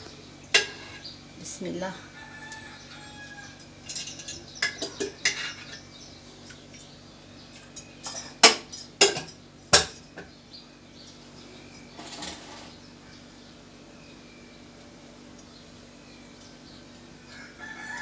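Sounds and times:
metal pan and utensils clanking: 0.5 - 1.0, 3.8 - 5.9, 7.8 - 10.3.

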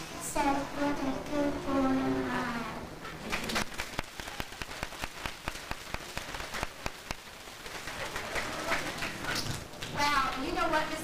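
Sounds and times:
audience applauding: 3.2 - 9.6.

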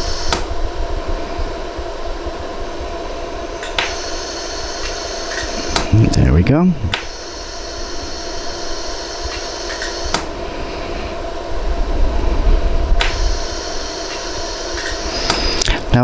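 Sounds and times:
laser pulse clicks: 0.0 - 0.6, 3.6 - 10.3, 13.0 - 15.8
laser welder humming: 0.0 - 16.0.

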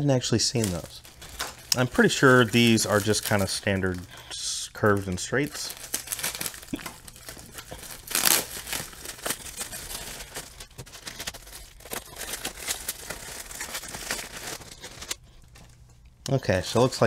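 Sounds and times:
plastic wrap crinkling: 0.3 - 17.0
plastic tearing rustle: 0.4 - 15.8
scissors cutting plastic: 0.6 - 4.2, 4.9 - 15.7.

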